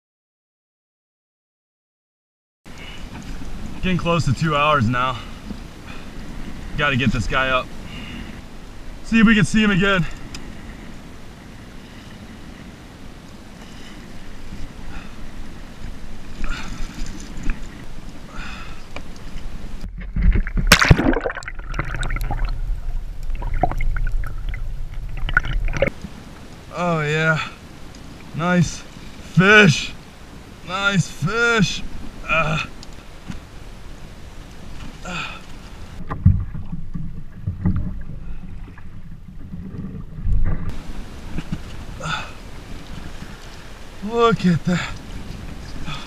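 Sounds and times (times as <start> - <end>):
water sloshing and gurgling: 2.7 - 46.0
underwater gurgling: 18.9 - 26.3, 35.8 - 44.0
loud splash: 20.1 - 25.9.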